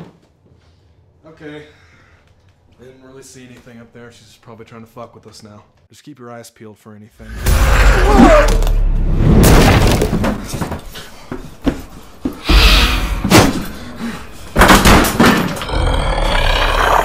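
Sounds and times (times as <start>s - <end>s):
loud crashes and thuds: 7.2s - 11.0s, 14.5s - 15.6s
something breaking: 7.3s - 10.9s.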